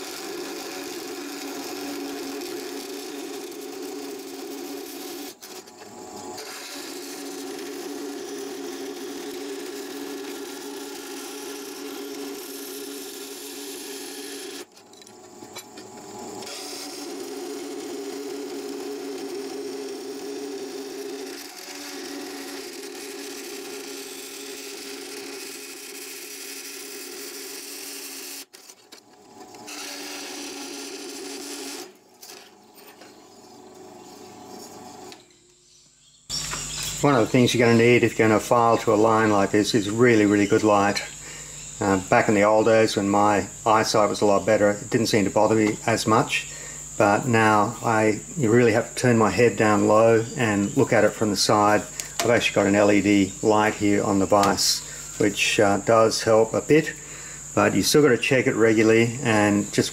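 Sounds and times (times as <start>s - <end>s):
bandsaw cutting steel plate: 0.0s - 33.0s.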